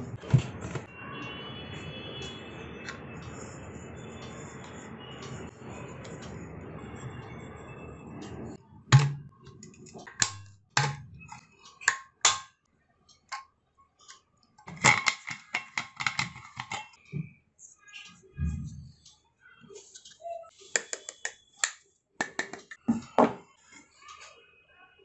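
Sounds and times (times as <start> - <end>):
plastic lid clicks and taps: 20.8 - 23.1.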